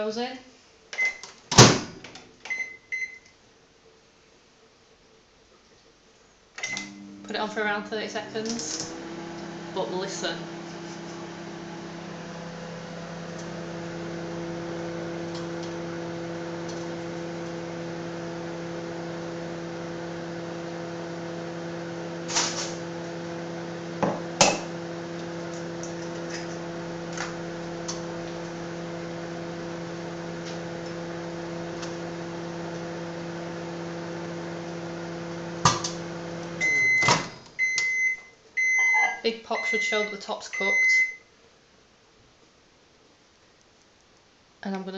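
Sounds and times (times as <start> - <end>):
microwave oven humming: 6.6 - 41.3.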